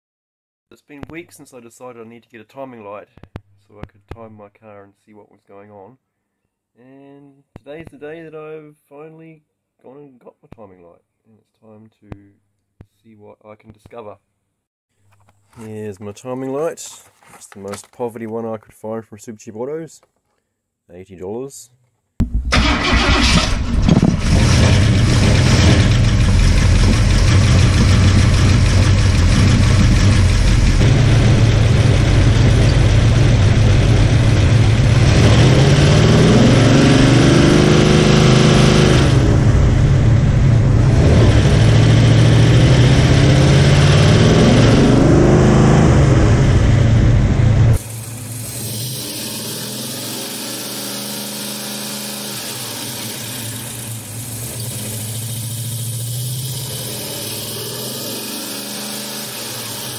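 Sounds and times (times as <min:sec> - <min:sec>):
car engine idling and revving: 0:22.5 - 0:59.9.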